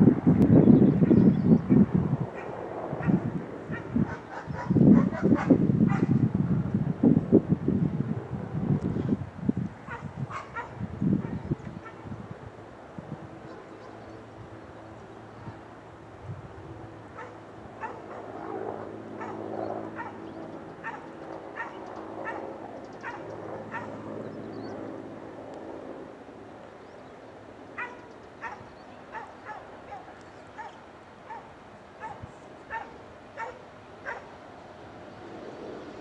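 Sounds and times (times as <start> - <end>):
dog barking: 2.4 - 6.1, 9.9 - 12.0, 17.2 - 18.2, 19.2 - 19.4, 20.0 - 20.2, 20.8 - 24.0, 27.8 - 34.3.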